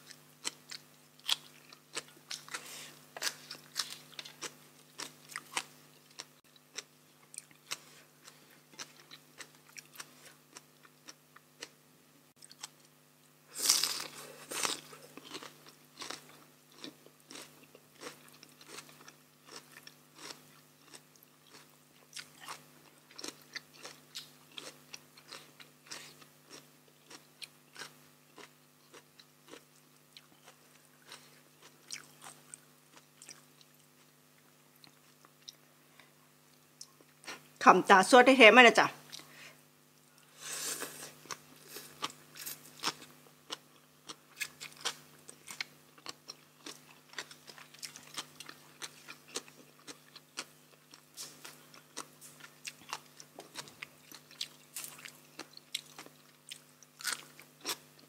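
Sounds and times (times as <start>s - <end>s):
person chewing food: 0.0s - 11.8s, 12.4s - 12.9s, 13.5s - 37.5s, 40.0s - 58.0s
faint steady hum: 0.0s - 58.0s
loud crunchy bite: 13.5s - 29.6s, 56.9s - 57.9s.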